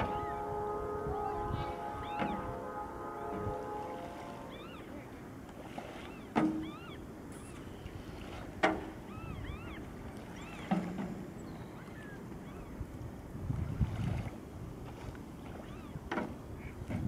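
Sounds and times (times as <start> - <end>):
paddle knocking on hull: 2.0 - 4.3, 5.8 - 6.8, 8.2 - 9.1, 15.6 - 17.0
small birds chirping: 9.1 - 10.7.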